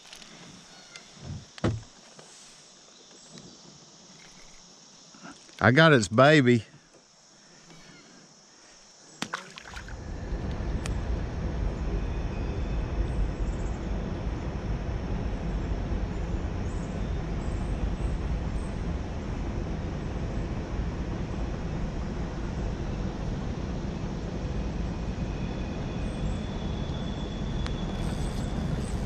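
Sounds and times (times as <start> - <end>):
wind buffeting microphone: 9.9 - 29.0.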